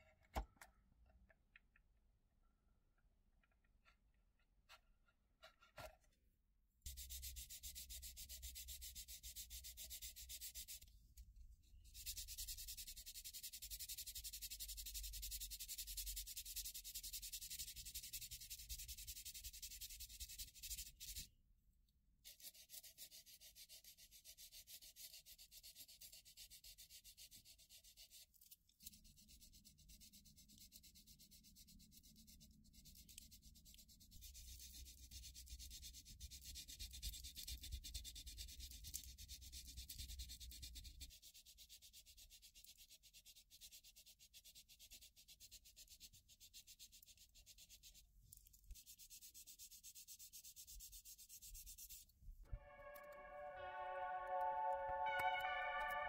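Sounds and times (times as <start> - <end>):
sanding plastic: 6.9 - 10.9, 11.9 - 21.3, 22.3 - 52.1.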